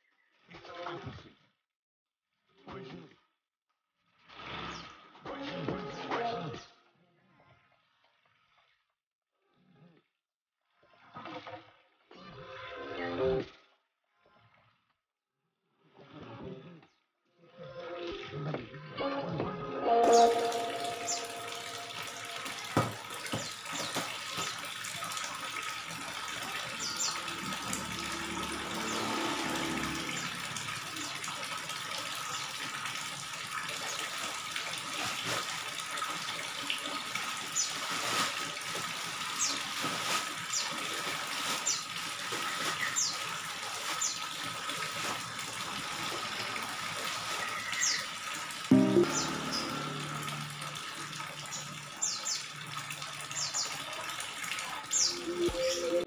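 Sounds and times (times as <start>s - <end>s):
short high chirps: 20.0s - 22.6s, 48.7s - 52.3s
water splashing into pond: 20.1s - 56.0s.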